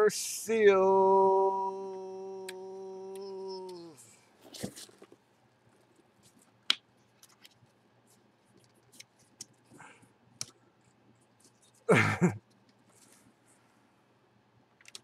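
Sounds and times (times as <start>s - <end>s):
cardboard rustle: 4.4s - 5.2s.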